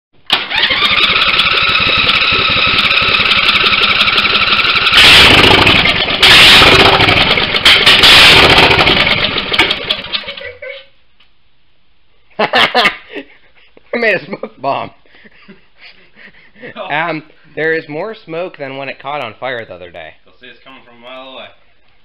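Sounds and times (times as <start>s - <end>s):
electric starter cranking: 0.2s - 10.4s
engine running loud and rough: 0.3s - 10.2s.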